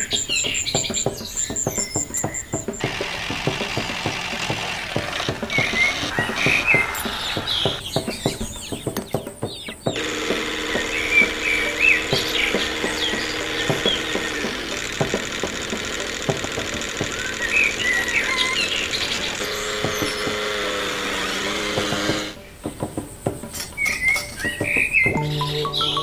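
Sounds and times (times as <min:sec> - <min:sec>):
birds chirping: 0:00.0 - 0:26.0
small electric motor whirring: 0:02.8 - 0:07.8, 0:10.0 - 0:22.4.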